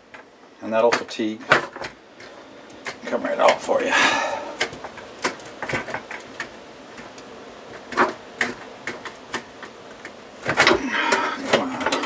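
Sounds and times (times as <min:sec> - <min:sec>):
sheet metal clicking and tapping: 0:04.6 - 0:12.0.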